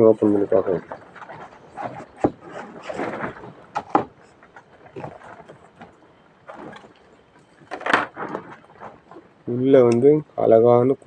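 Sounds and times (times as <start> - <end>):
cardboard rustling scrape: 1.2 - 4.2.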